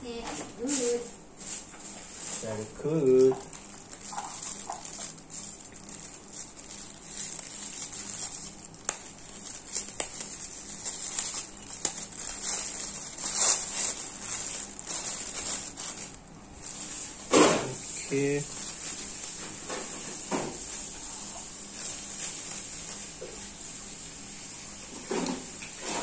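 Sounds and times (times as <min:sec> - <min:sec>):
steady high-pitched hiss: 0:16.9 - 0:19.3.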